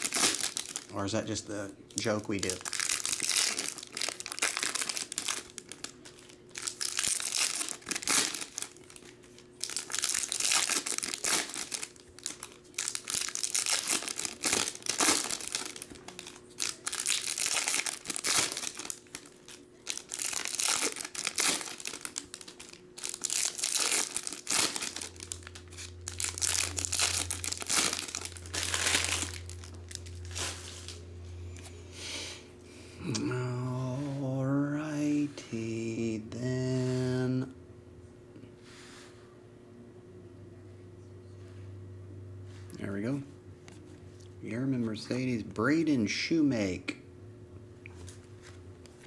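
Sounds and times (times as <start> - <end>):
foil wrappers tearing and crinkling: 0.0 - 31.0.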